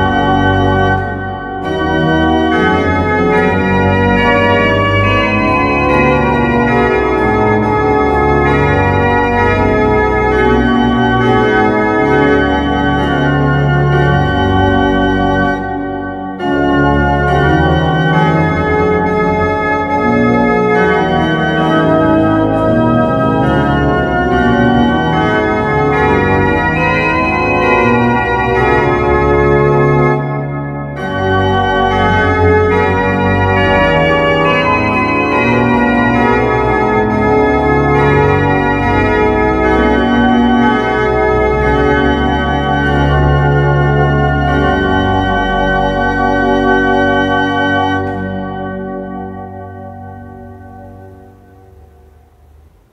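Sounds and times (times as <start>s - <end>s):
pipe organ playing hymn chords: 0.0s - 52.9s.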